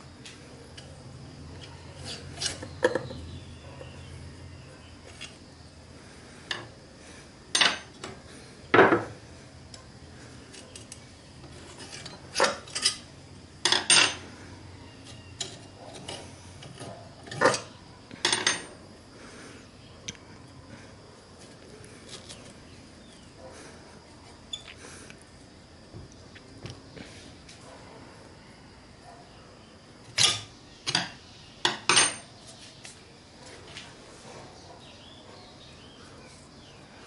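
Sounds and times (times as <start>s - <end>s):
metal bolts clinking and scraping: 11.6s - 13.0s.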